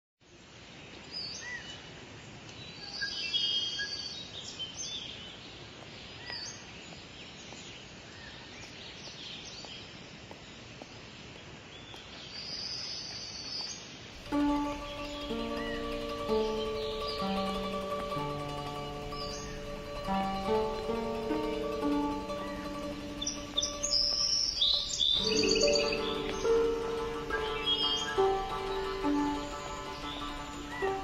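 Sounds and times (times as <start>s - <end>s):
steady background hiss: 0.2s - 31.0s
birds chirping and singing: 14.2s - 31.0s.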